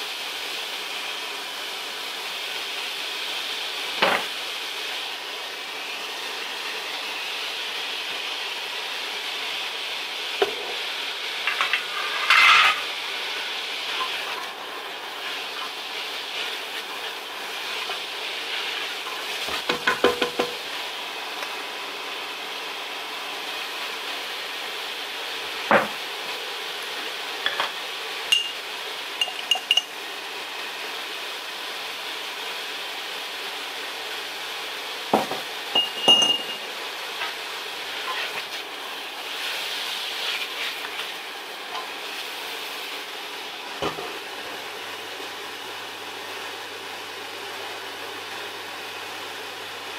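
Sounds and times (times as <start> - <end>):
vegetables sizzling in oil: 0.0 - 49.9
utensils clinking against pot: 11.5 - 12.9, 27.4 - 28.6, 29.2 - 29.9, 35.7 - 36.6.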